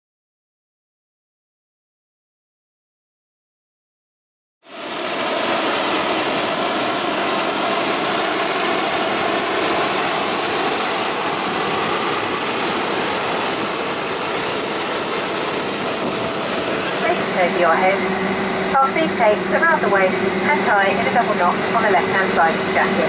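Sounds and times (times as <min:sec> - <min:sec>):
jet turbine rushing and whining: 0:04.7 - 0:23.0.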